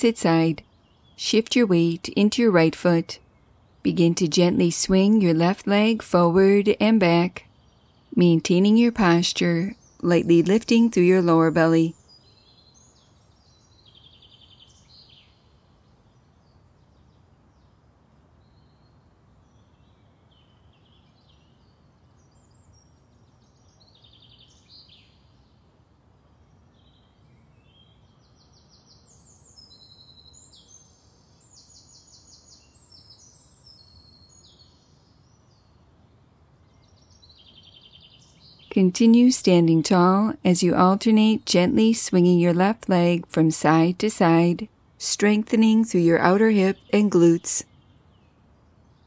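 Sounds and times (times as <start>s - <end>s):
bird chirps and trills: 26.5s - 49.0s.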